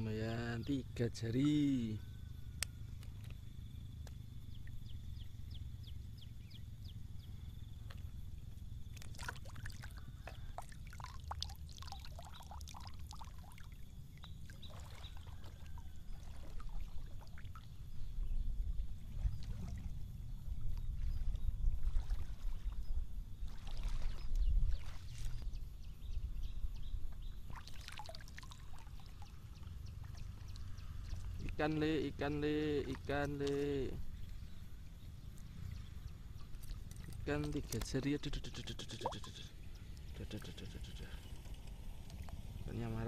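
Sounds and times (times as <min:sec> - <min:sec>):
water sloshing and trickling: 0:00.0 - 0:38.2, 0:39.0 - 0:43.0
small splashes: 0:07.8 - 0:17.9, 0:19.0 - 0:20.0, 0:20.6 - 0:25.6, 0:27.4 - 0:35.5, 0:36.2 - 0:42.8.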